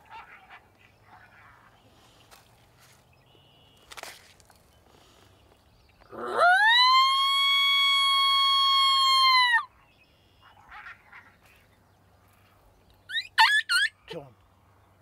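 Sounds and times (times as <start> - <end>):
coyote howl: 6.1 - 9.7, 13.1 - 14.1.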